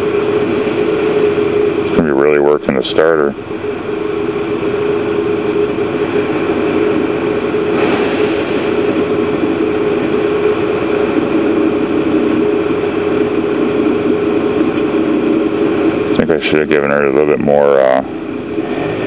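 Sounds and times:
scooter engine idling: 0.0 - 7.8.

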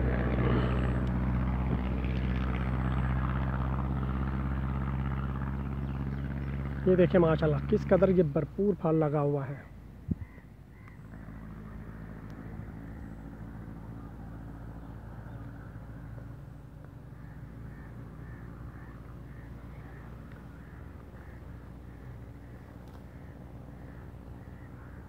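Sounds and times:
low engine hum: 0.0 - 25.0
crows cawing: 10.1 - 14.2, 16.9 - 25.0.

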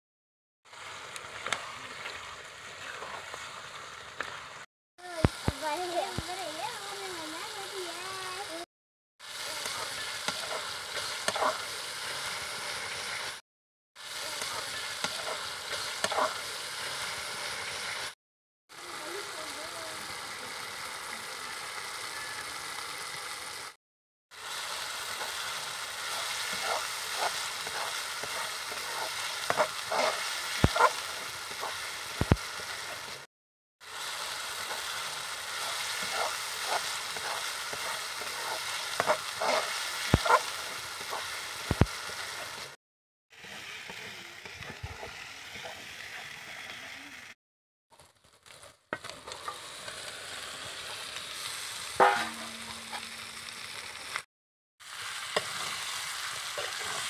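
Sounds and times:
masala sizzling in oil: 0.6 - 13.4, 14.0 - 57.0
metal spatula scraping pan: 52.0 - 53.1.

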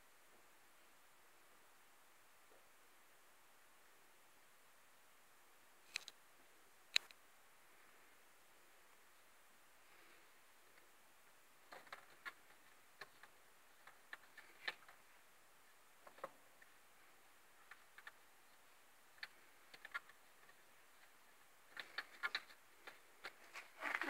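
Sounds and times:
faint ticks and clicks: 5.8 - 6.2, 6.8 - 8.1, 8.9 - 24.0.

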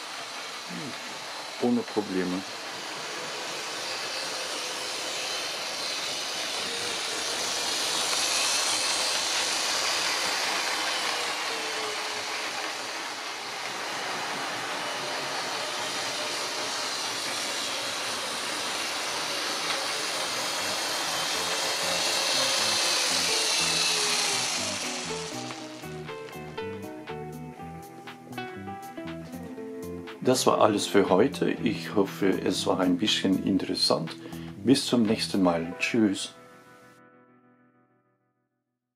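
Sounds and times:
faint gliding whine: 0.0 - 26.4
model train motor whirring: 0.0 - 26.4.

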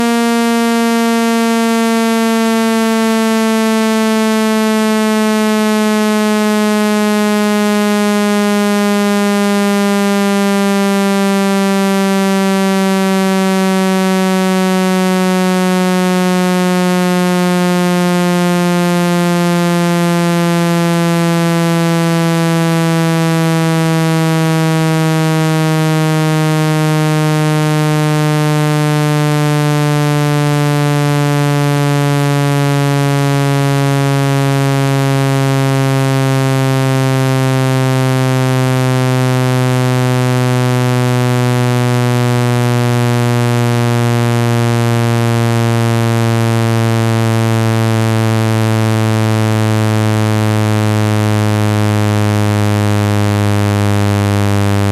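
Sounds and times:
buzzy synthesized tone sliding down: 0.0 - 54.9.

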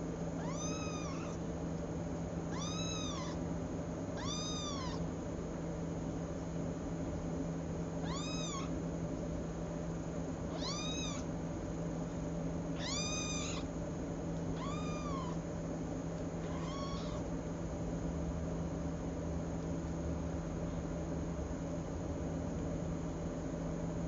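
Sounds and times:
steady low hum: 0.0 - 24.0
kitten meowing: 0.4 - 1.5, 2.5 - 3.4, 4.2 - 5.1, 8.0 - 8.7, 10.5 - 11.3, 12.7 - 13.7, 14.6 - 15.4, 16.4 - 17.3.

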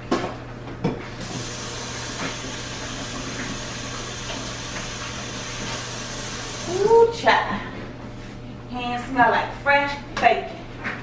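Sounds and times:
tap running into sink: 1.2 - 6.7.

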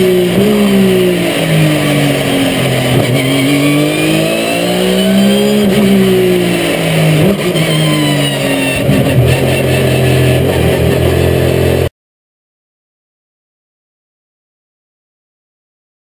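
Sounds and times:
race car engine revving: 0.0 - 11.9.

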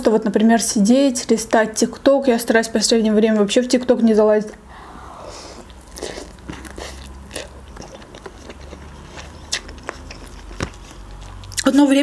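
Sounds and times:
slurping noodles: 4.7 - 10.4
wet chewing with mouth clicks: 5.6 - 11.8.

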